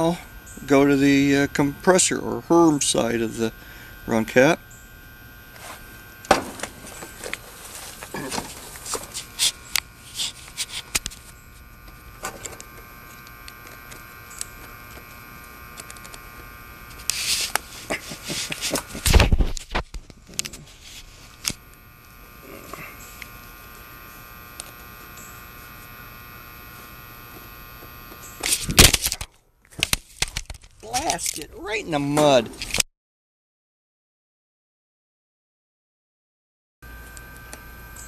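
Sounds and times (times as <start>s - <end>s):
steady buzz: 0.0s - 32.8s, 36.8s - 38.0s
heavy thump: 6.3s - 6.9s.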